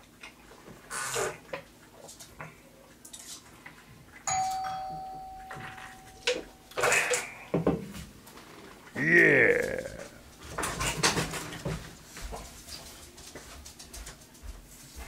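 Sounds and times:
doorbell chime: 4.3s - 6.8s.

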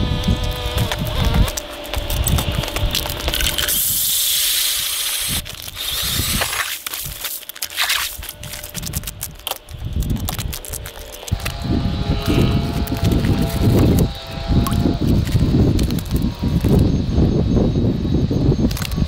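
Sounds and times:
ice auger grinding whir: 0.0s - 16.9s
knocks and scrapes on ice: 0.4s - 11.4s.

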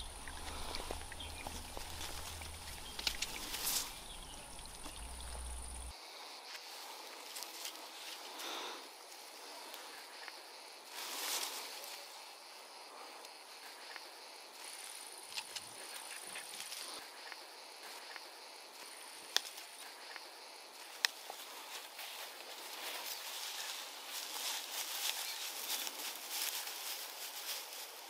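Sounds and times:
dry grass and leaves rustling: 0.0s - 28.0s
high insect trill: 0.0s - 28.0s
pruning clippers snipping: 0.9s - 4.0s.

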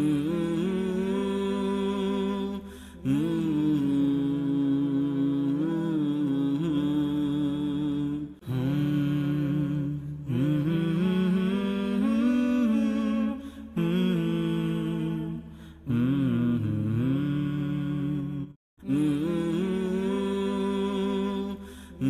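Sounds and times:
voices singing unaccompanied: 0.0s - 22.0s
singers breathing: 2.6s - 3.0s, 13.4s - 13.8s, 15.4s - 15.9s, 21.6s - 22.0s.

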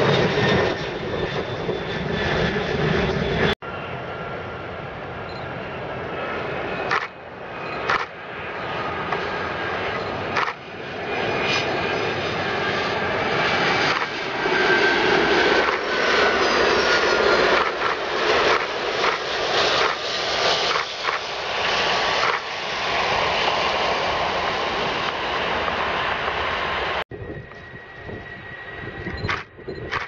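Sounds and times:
jet airliner engines roaring: 0.0s - 30.0s.

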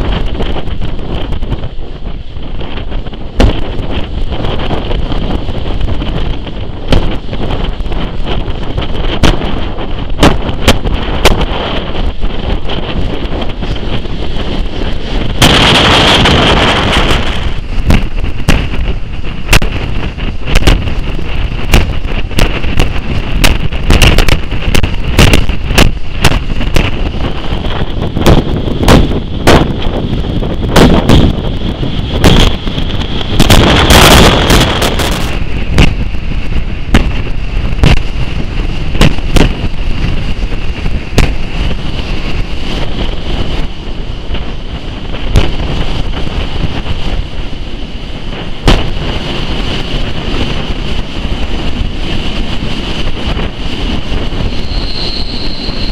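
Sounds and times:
steam train clattering: 0.0s - 55.9s
wind on microphone: 0.0s - 55.9s
high squeal: 54.4s - 55.9s.

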